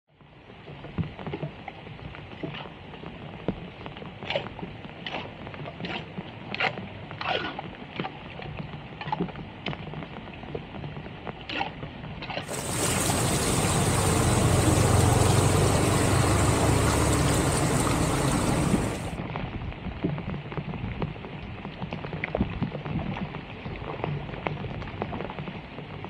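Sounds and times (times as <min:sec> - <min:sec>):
water splashing and sloshing: 0:04.2 - 0:09.8, 0:11.5 - 0:19.2
rain on pavement: 0:12.4 - 0:19.2.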